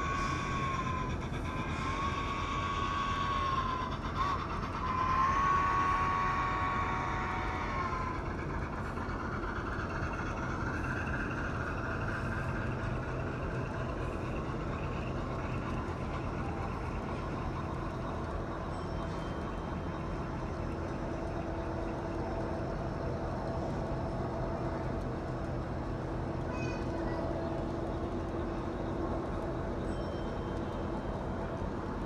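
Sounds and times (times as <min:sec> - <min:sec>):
model trains rumbling: 0:00.0 - 0:32.0
model locomotive horn blasts: 0:01.7 - 0:08.0.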